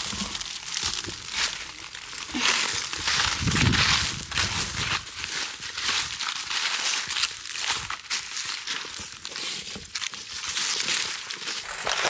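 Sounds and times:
footsteps through dry leaves: 0:00.0 - 0:12.0.

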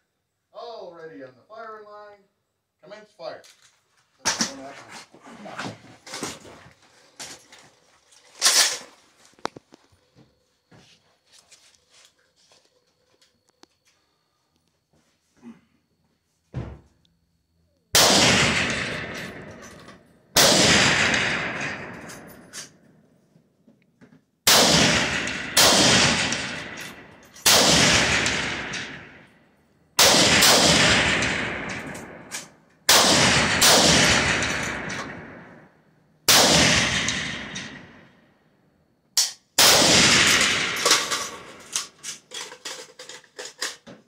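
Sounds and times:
rifle shots ringing out: 0:18.0 - 0:22.8, 0:24.4 - 0:29.3, 0:30.0 - 0:35.7, 0:36.3 - 0:38.2, 0:39.2 - 0:42.0.

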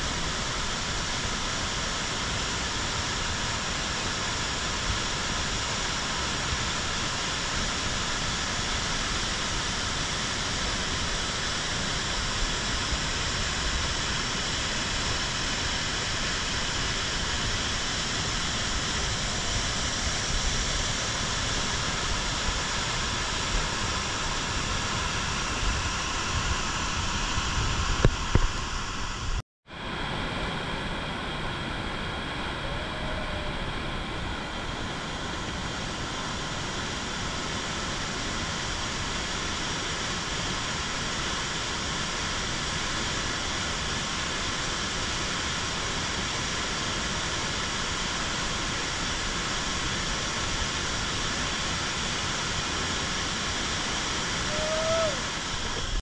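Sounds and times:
waterfall roaring: 0:00.0 - 0:56.0
faint whistle-like call: 0:54.4 - 0:55.4.

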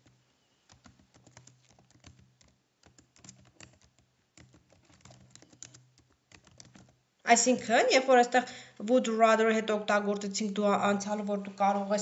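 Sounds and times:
keyboard typing: 0:00.0 - 0:07.7.

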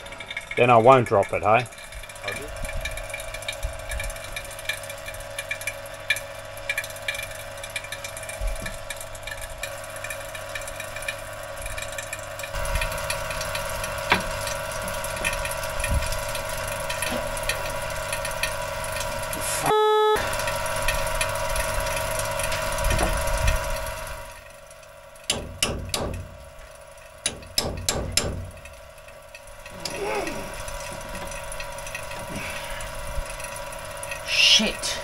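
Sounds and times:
vacuum pump humming: 0:00.0 - 0:35.0
short loud beep: 0:19.6 - 0:20.3.

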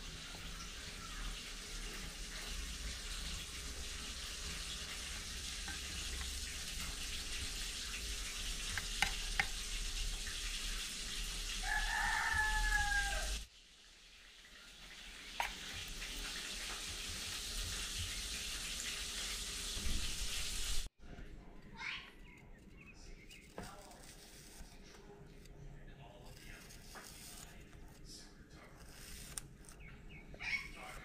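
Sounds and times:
food sizzling in hot oil: 0:00.0 - 0:20.9
rooster crowing: 0:11.6 - 0:13.4.

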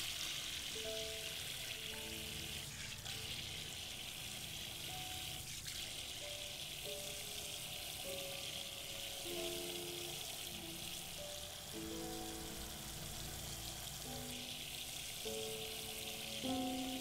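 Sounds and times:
hose water spraying into basin: 0:00.0 - 0:17.0
soft music of held notes: 0:00.0 - 0:17.0.

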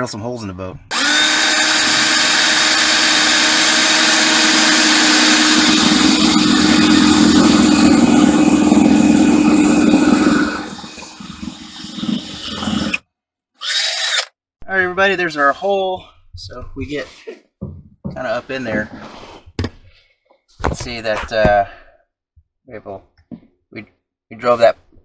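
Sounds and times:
cordless drill running: 0:00.9 - 0:13.0, 0:13.6 - 0:14.3.

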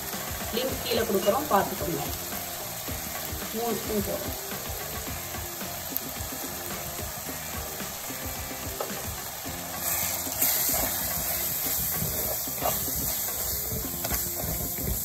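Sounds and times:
food sizzling in oil: 0:00.0 - 0:15.0
wooden spatula scraping pot: 0:09.8 - 0:14.6.

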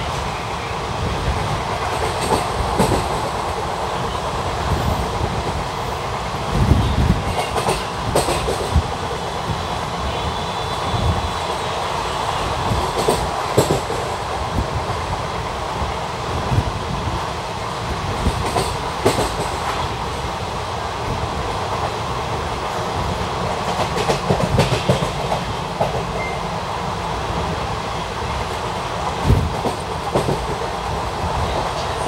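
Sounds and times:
train wheels rumbling on track: 0:00.0 - 0:32.0
wheels clacking over rail joints: 0:01.8 - 0:04.2, 0:07.2 - 0:08.9, 0:18.2 - 0:20.0, 0:23.4 - 0:26.3, 0:28.5 - 0:32.0.

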